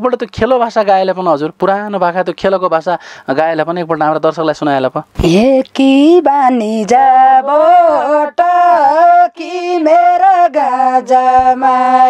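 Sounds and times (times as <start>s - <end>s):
singer breathing: 3.0s - 3.3s
woman singing unaccompanied: 5.2s - 12.0s.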